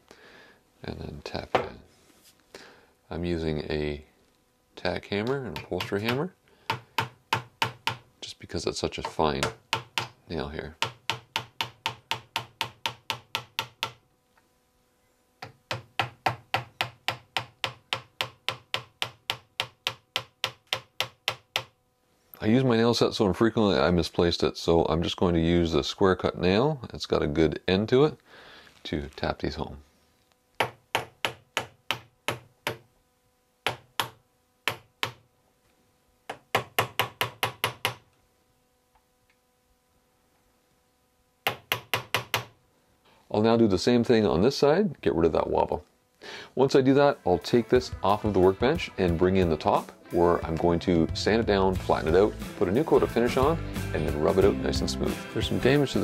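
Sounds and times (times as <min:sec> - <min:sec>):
hammer tapping nails: 0:05.5 - 0:08.0, 0:10.8 - 0:14.0, 0:15.4 - 0:21.8, 0:30.6 - 0:32.9, 0:33.6 - 0:35.2, 0:36.3 - 0:38.1, 0:41.4 - 0:42.6.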